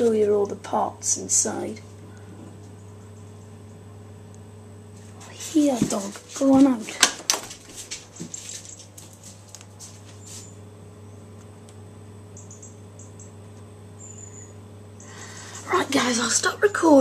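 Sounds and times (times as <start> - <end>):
boiler humming: 0.0 - 17.0
dog paws scuffling and pattering: 5.0 - 10.5.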